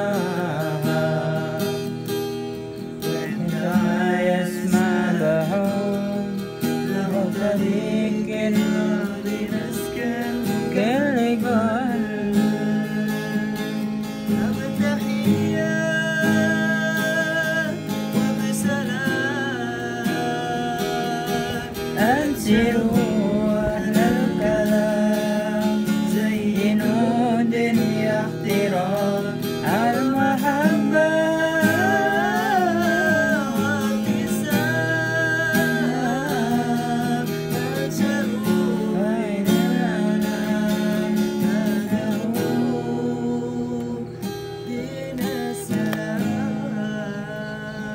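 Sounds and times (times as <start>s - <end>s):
acoustic guitar strumming: 0.0s - 47.9s
man singing: 0.0s - 47.9s.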